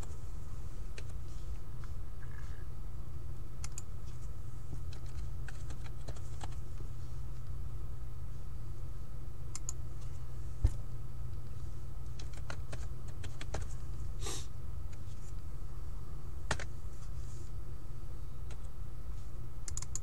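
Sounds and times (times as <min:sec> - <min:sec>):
keyboard typing: 0:03.6 - 0:03.9, 0:04.9 - 0:06.6, 0:09.5 - 0:09.8, 0:12.2 - 0:13.7, 0:19.6 - 0:20.0.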